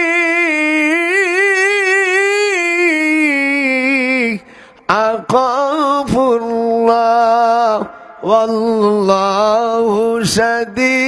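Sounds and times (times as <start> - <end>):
man chanting melodic recitation: 0.0 - 11.0
breath: 4.4 - 4.9, 7.9 - 8.2.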